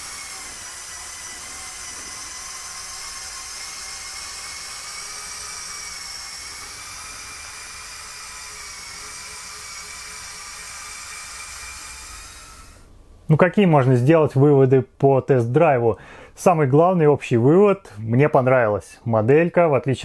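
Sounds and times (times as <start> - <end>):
toy truck motor whine: 0.0 - 12.9.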